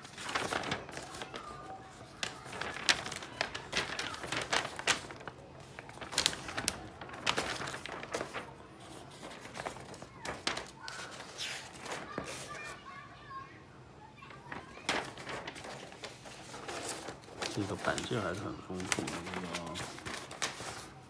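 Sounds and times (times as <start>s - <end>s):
paper pages flicking: 0.0s - 12.8s, 14.2s - 21.0s
paper pages rustling: 0.0s - 13.0s, 14.2s - 21.0s.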